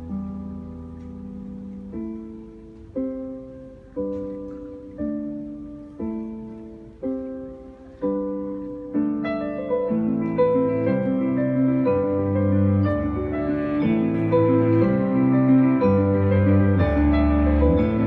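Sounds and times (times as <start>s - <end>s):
grand piano chords: 0.0s - 18.0s
string ensemble: 10.0s - 18.0s.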